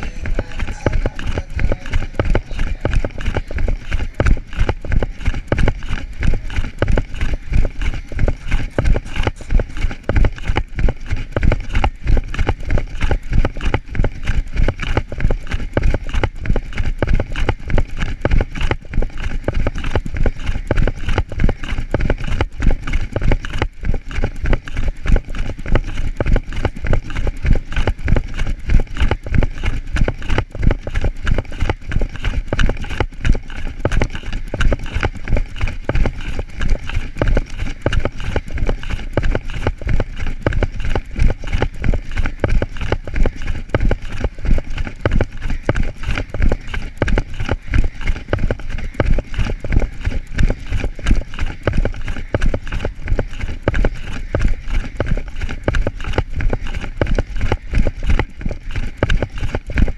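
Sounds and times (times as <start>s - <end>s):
running footfalls on grass: 0.0s - 59.9s.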